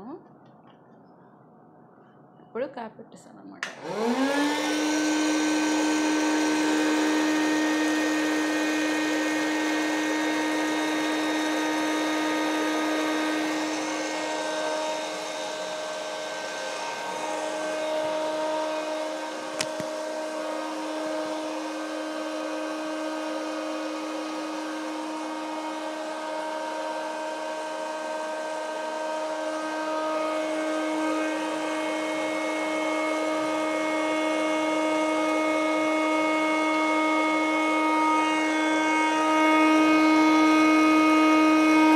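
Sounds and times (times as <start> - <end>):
popcorn maker motor hum: 3.6 - 41.9.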